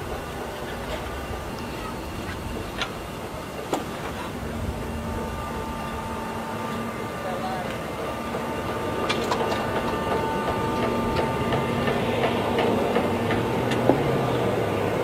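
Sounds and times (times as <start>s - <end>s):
jet equipment hum and whine: 0.0s - 15.0s.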